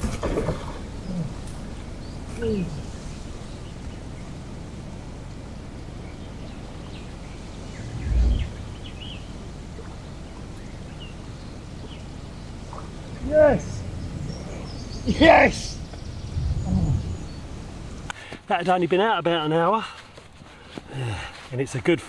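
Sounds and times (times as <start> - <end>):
wind rumble on microphone: 0.0 - 18.1
faint bird chirps: 5.2 - 18.1
dull low thump: 7.8 - 9.0.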